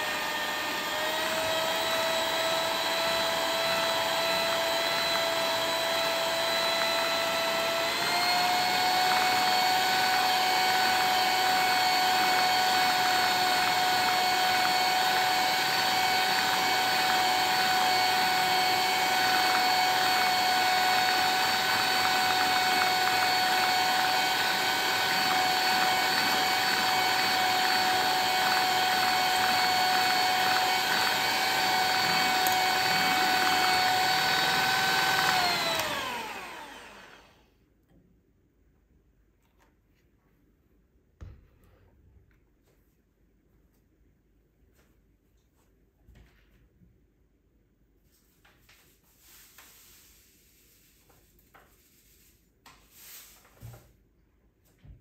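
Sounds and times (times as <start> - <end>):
electric mixer motor whining: 0.0 - 37.5.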